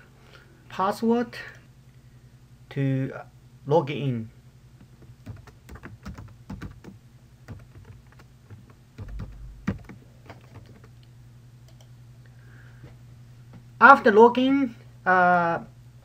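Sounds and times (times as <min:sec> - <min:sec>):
keyboard typing: 0:04.9 - 0:11.0, 0:11.7 - 0:11.9
low hum: 0:09.0 - 0:13.4.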